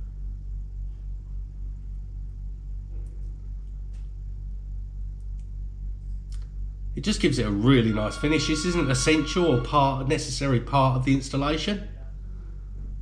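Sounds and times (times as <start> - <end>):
low hum: 6.8 - 13.0.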